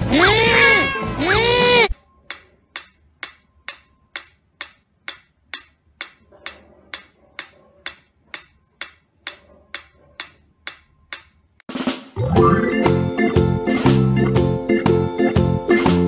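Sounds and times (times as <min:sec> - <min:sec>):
metronome ticking: 0:02.3 - 0:06.2, 0:07.0 - 0:11.4
loud music: 0:11.7 - 0:16.0.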